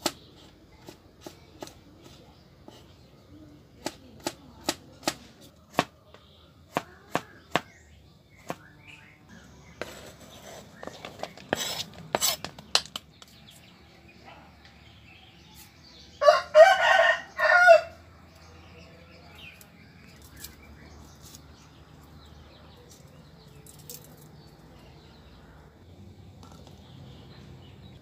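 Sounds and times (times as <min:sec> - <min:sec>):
rooster crowing: 0:16.2 - 0:18.0.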